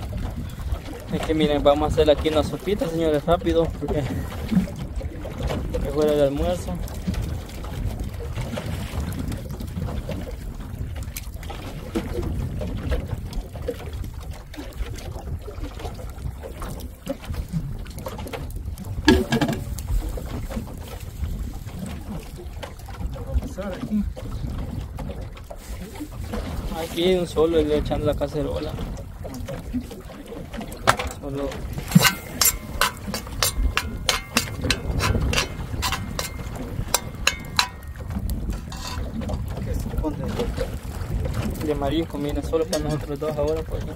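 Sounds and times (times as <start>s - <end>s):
water against boat hull: 0.0s - 43.9s
wind buffeting microphone: 0.0s - 43.9s.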